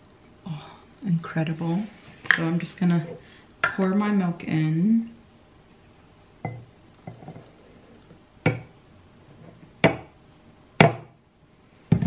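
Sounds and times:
metal jug knocking against glass mug: 6.4 - 7.4, 8.5 - 8.7.

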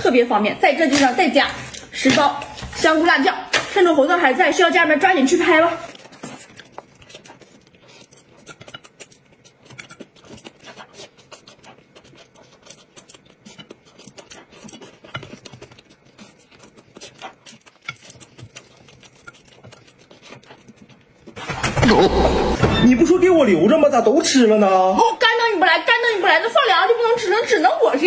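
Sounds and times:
chewing food: 4.3 - 22.6.

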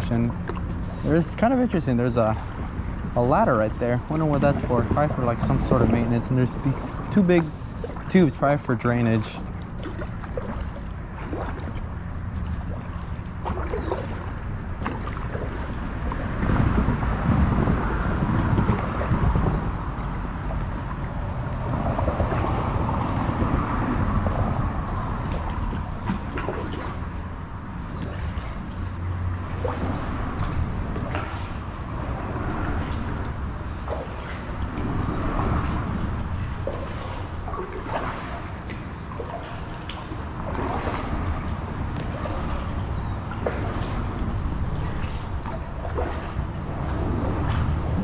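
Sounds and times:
water drips: 0.0 - 16.6, 23.5 - 48.0
steady low rumble: 0.0 - 48.0
water trickling and splashing: 0.0 - 48.0
wind buffeting microphone: 0.0 - 48.0
water hissing around kayak: 0.5 - 1.8, 27.6 - 39.8.

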